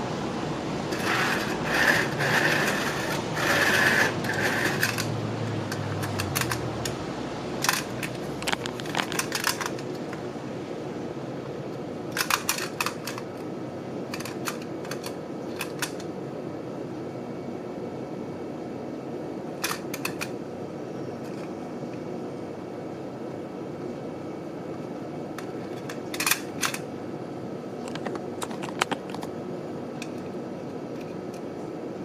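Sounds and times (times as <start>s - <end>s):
toy rubbing and scraping on table: 0.9s - 5.2s.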